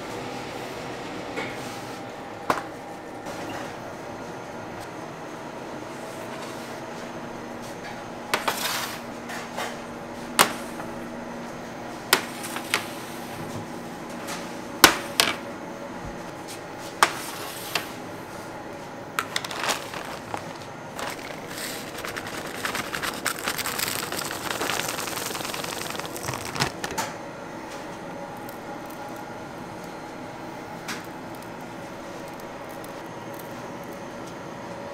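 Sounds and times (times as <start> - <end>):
machine hum: 17.9 - 34.9
crackly rustling: 19.2 - 27.1.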